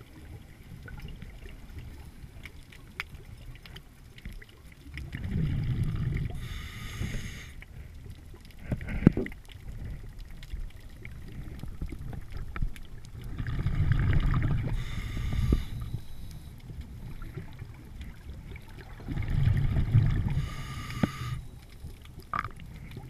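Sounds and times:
exhaled air bubbling underwater: 0:00.0 - 0:23.0
regulator hissing inhale: 0:06.2 - 0:07.9, 0:14.6 - 0:17.3, 0:20.2 - 0:21.6
faint clicks: 0:20.8 - 0:23.0.

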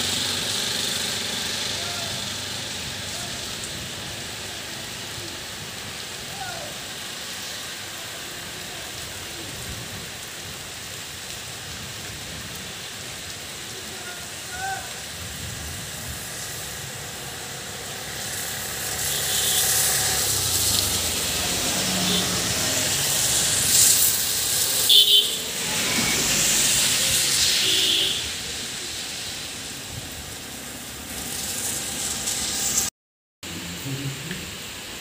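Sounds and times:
rain on trees and wet road: 0:00.0 - 0:35.0
loud hiss: 0:15.8 - 0:32.9.

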